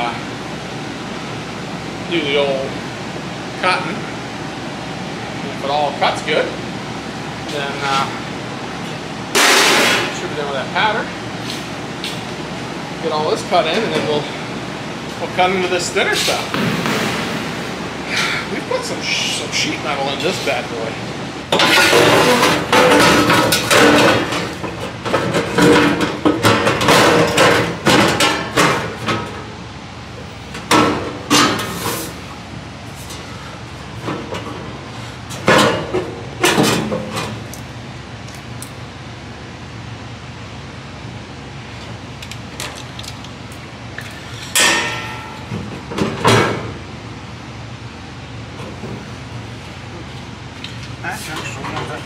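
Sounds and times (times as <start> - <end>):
steady low hum: 0.0 - 52.0
hammer striking sheet metal: 9.4 - 10.1, 44.6 - 45.5
loud scraping clatters: 21.5 - 28.9.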